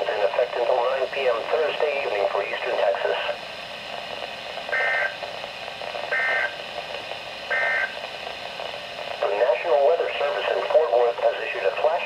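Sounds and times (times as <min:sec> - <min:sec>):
faint radio hiss: 0:00.0 - 0:12.0
two-tone data bursts: 0:04.7 - 0:05.2, 0:06.1 - 0:06.6, 0:07.5 - 0:08.0.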